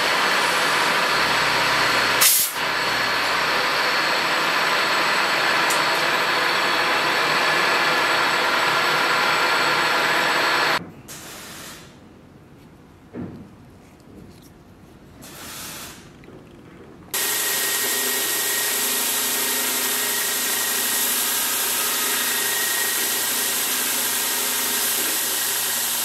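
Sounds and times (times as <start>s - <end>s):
milling machine cutting metal: 0.0s - 10.8s, 17.2s - 26.0s
short loud hiss: 2.2s - 2.6s, 11.1s - 12.0s.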